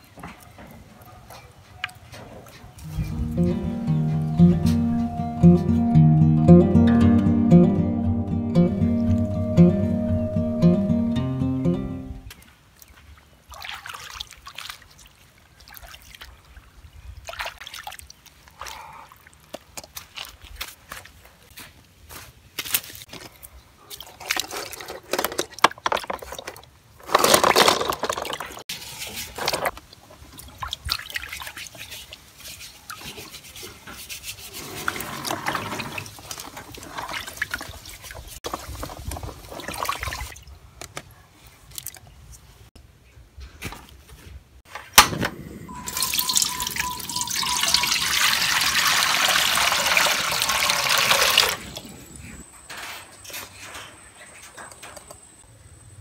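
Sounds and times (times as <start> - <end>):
water splashing in basin: 13.4 - 16.3, 27.5 - 32.2, 34.8 - 40.5, 45.8 - 51.8
water pouring into metal pot: 45.8 - 51.6.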